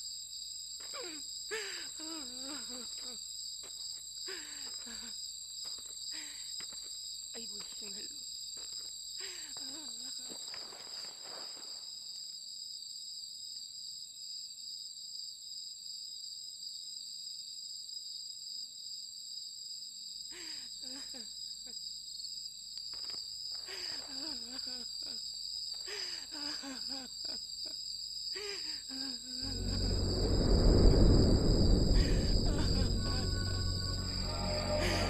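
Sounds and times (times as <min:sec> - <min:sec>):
crickets chirping: 0:27.4 - 0:35.0.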